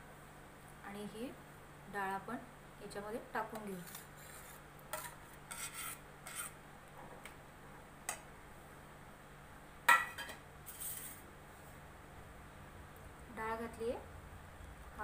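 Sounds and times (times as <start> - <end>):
spatula scraping steel pan: 3.6 - 6.6.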